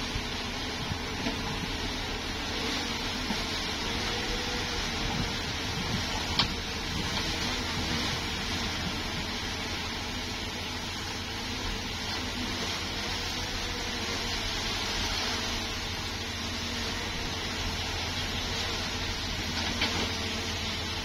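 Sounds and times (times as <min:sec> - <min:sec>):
bulldozer diesel engine running: 0:00.0 - 0:21.0.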